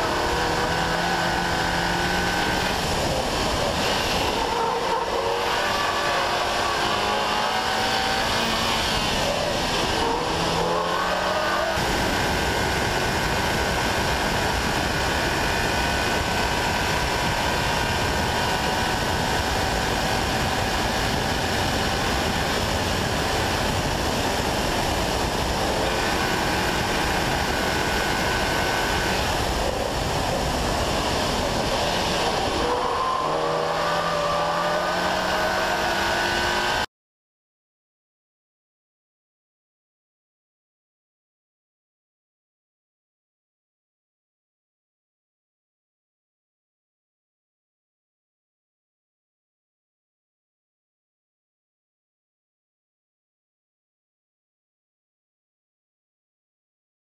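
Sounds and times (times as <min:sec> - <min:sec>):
car engine pulling hard: 0:00.0 - 0:36.9
wind and road noise: 0:00.0 - 0:36.9.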